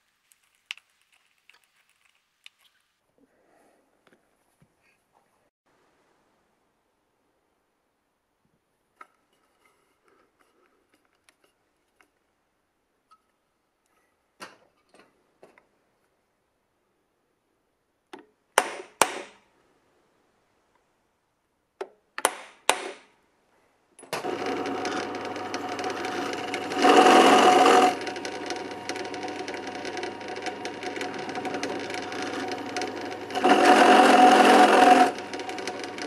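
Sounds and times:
drill press drilling metal: 0:24.2 - 0:36.0.

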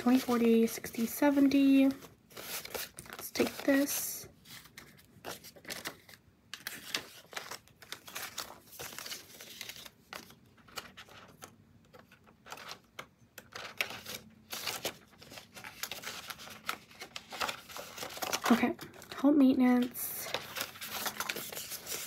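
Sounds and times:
paper banknotes rustling: 0:00.0 - 0:22.0.

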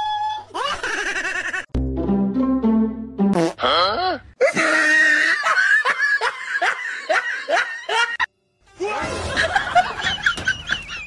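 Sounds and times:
music: 0:01.7 - 0:03.6.

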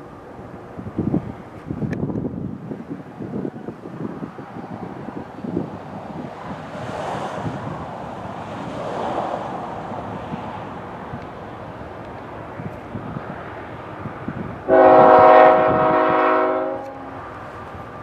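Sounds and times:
wind rushing on microphone: 0:00.0 - 0:18.0
locomotive air horn chord: 0:14.7 - 0:17.3.

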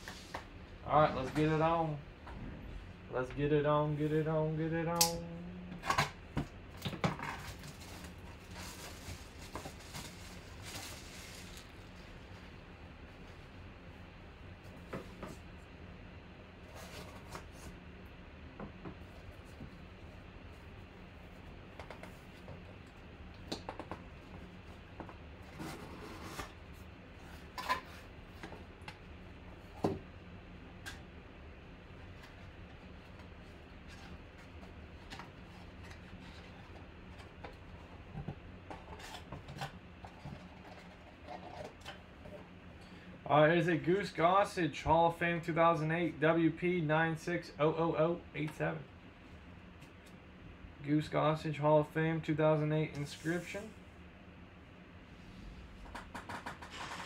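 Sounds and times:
plastic shrink-wrap crackling: 0:07.6 - 0:12.0.

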